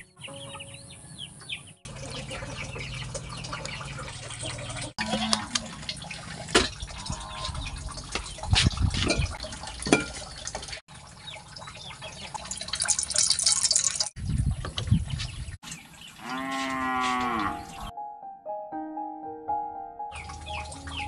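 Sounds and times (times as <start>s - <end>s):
cow mooing: 5.0s - 5.6s, 7.0s - 7.6s, 16.2s - 17.9s
oil poured into wok: 12.5s - 14.1s.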